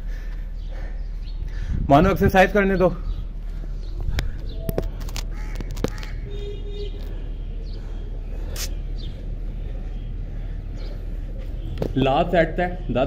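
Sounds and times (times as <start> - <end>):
bird calls and chirps: 0.0 - 11.8
steady low rumble: 0.0 - 11.8
crow cawing: 5.3 - 6.4.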